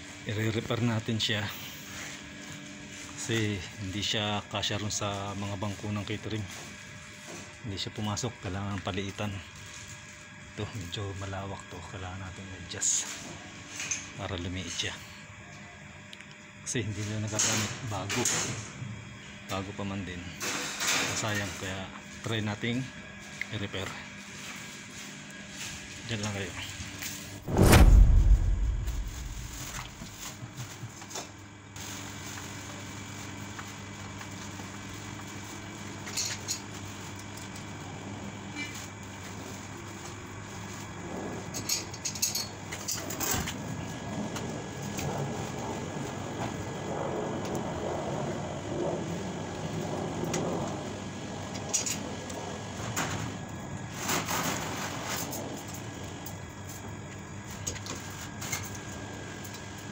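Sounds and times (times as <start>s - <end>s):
steady low hum: 24.3s - 30.8s.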